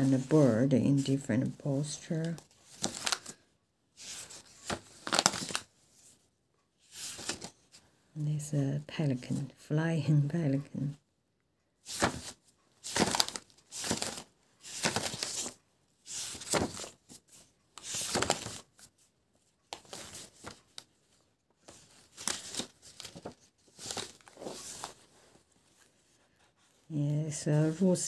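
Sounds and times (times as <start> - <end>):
paper pages flipping: 0.0 - 3.4, 4.0 - 6.2, 6.9 - 7.8, 11.8 - 19.0, 19.7 - 26.7.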